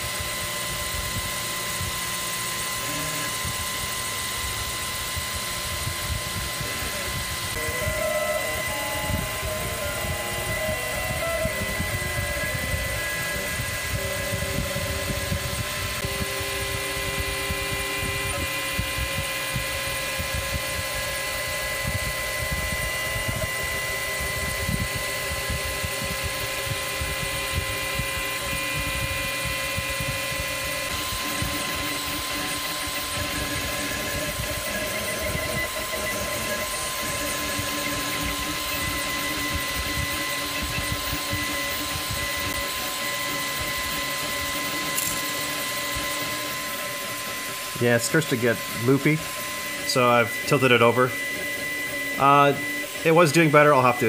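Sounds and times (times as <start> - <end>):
printer stepper motors whining: 0.0 - 54.0.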